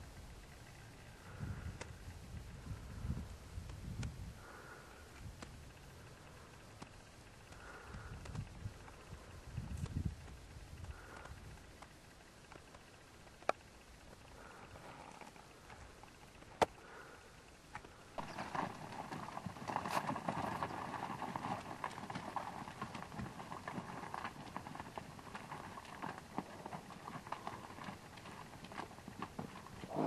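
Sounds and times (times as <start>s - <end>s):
hooves on gravel: 17.8s - 30.0s.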